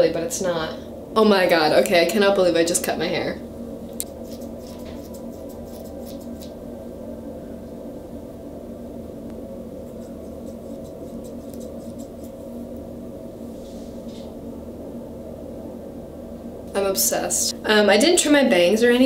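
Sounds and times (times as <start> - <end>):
steady low hum: 0.0 - 19.0
scissors snipping hair: 4.0 - 6.5, 9.9 - 12.4.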